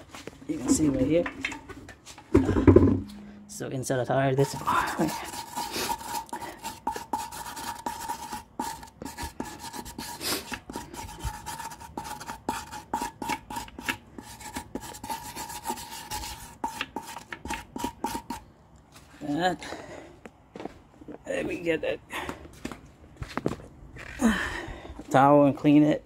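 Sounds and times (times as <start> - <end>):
wire brush rasping: 4.3 - 18.4.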